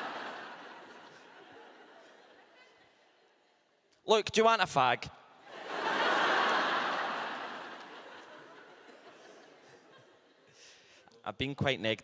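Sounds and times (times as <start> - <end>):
audience laughing: 0.0 - 3.5, 5.5 - 10.7.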